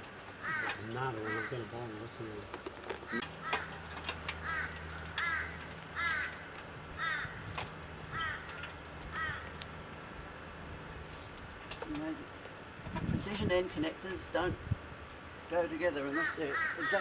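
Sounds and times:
bird calling: 0.3s - 9.7s, 15.9s - 17.0s.

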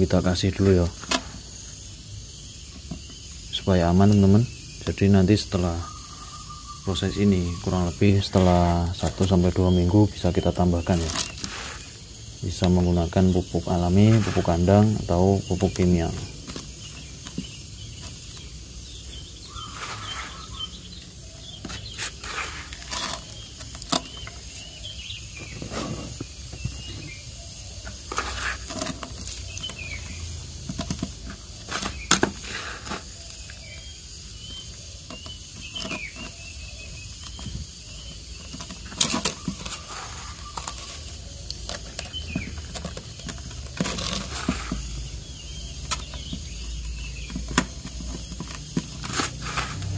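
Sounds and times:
hands rustling potting medium: 2.7s - 49.9s.

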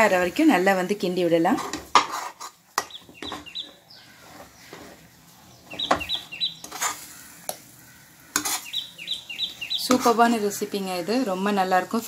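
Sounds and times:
spatula scraping pan: 1.3s - 11.0s
bird chirping: 2.8s - 10.7s.

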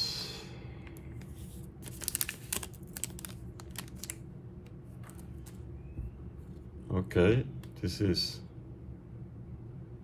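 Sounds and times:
card pack wrapper crinkling: 1.8s - 4.2s.

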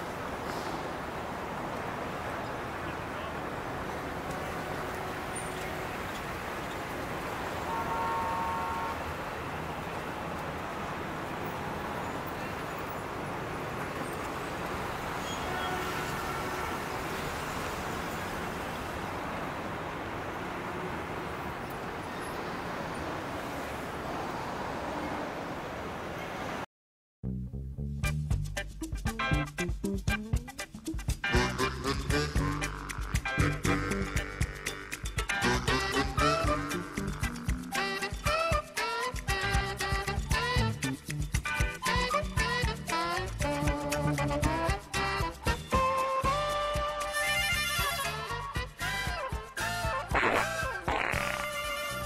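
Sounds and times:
street traffic noise: 0.0s - 26.7s, 27.8s - 52.0s
car horn: 3.8s - 6.2s, 7.5s - 9.3s, 15.2s - 17.4s, 44.3s - 52.0s.

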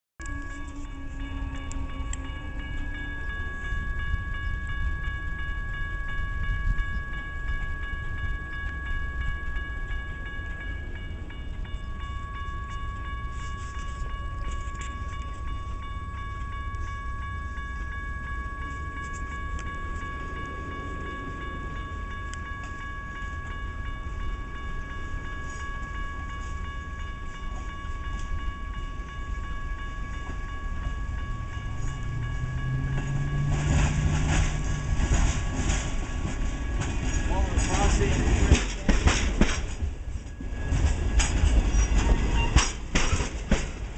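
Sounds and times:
crossing warning bell ringing: 0.2s - 43.9s
train rumble: 0.2s - 43.9s
train wheels clattering: 30.2s - 43.9s.

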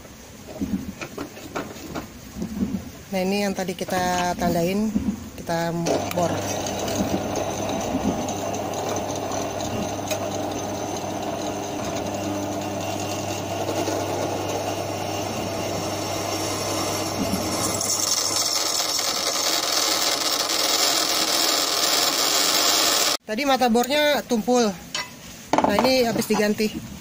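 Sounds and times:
drill press motor hum: 5.8s - 23.2s
drill bit scraping steel: 5.9s - 23.2s.

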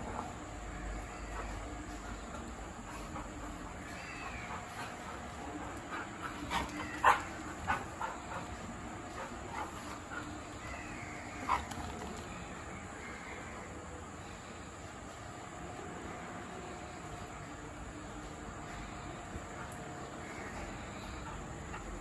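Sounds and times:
dogs barking and yipping: 0.0s - 12.4s.

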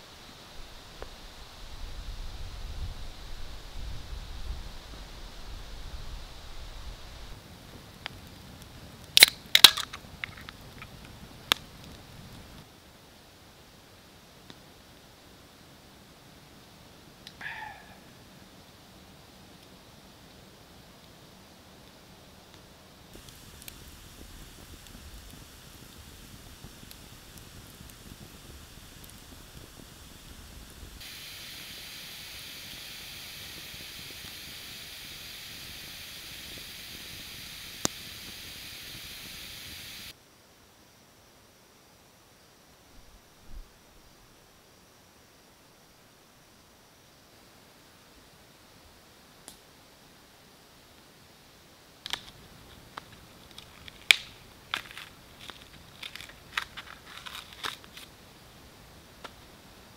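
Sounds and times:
fire popping: 0.0s - 12.7s, 21.1s - 40.2s, 52.0s - 59.9s
log steaming hiss: 0.0s - 12.8s, 14.1s - 40.2s, 48.6s - 59.9s
wood cracking: 9.2s - 11.6s, 52.0s - 58.1s.

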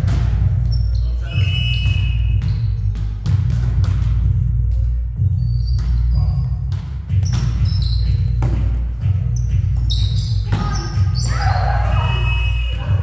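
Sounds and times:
sneaker squeaks on court: 0.6s - 3.4s, 5.4s - 8.7s, 9.3s - 12.5s.

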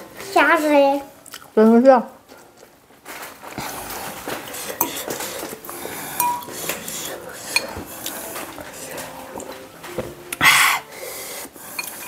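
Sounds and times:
spoon and fork clinking in bowl: 4.8s - 5.4s, 6.2s - 6.9s, 11.8s - 12.0s.

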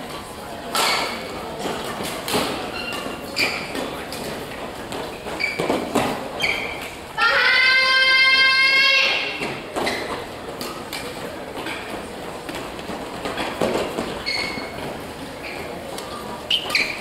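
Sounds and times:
shoe squeaks on court floor: 2.6s - 3.8s, 5.1s - 7.0s, 9.8s - 10.2s, 13.4s - 17.0s
person shouting: 7.2s - 9.4s.

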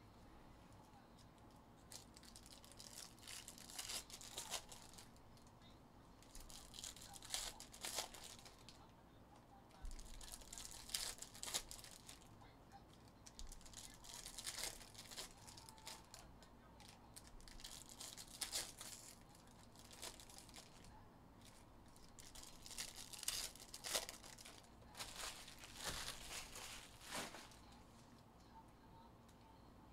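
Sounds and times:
foil wrappers crinkling and tearing: 1.9s - 5.2s, 6.2s - 8.8s, 9.8s - 12.3s, 13.2s - 20.9s, 21.5s - 27.7s.

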